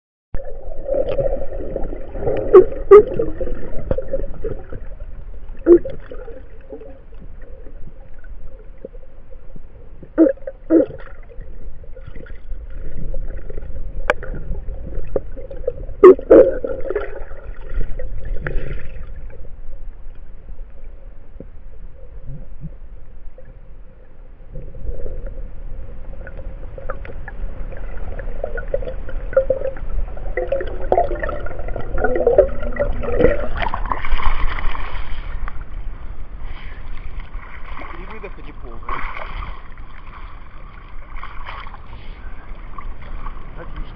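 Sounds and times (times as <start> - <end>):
underwater rumbling and gurgling: 0.4 - 43.9.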